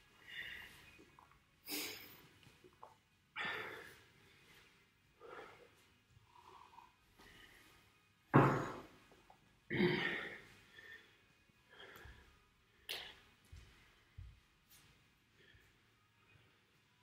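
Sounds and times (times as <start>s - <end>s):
man breathing hard: 0.1s - 1.0s, 3.4s - 8.0s, 10.0s - 14.2s.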